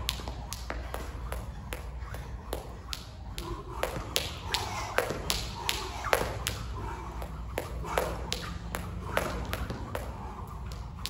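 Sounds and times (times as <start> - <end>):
jump rope slapping the floor: 0.0 - 11.0.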